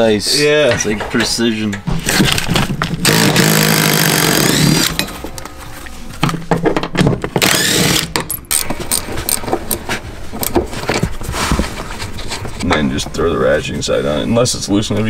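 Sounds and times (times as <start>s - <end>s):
impact driver spinning bolt: 2.1s - 5.1s, 7.4s - 10.6s
tool and bolt rattling: 6.5s - 11.1s.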